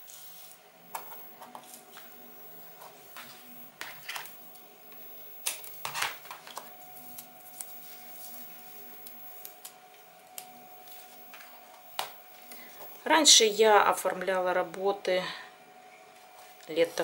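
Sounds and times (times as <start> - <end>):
tape strips rustling: 5.4 - 12.7.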